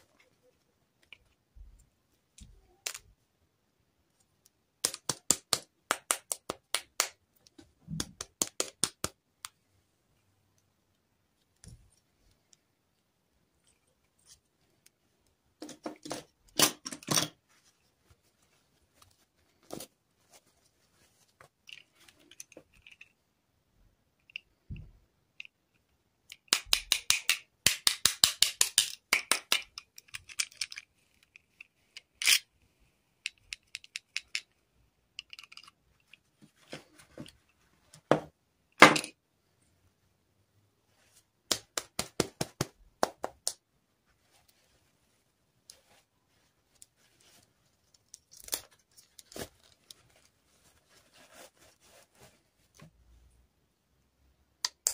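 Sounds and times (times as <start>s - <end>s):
plastic dolls clicking and rustling: 21.3s - 23.4s, 24.1s - 38.1s, 46.5s - 51.6s.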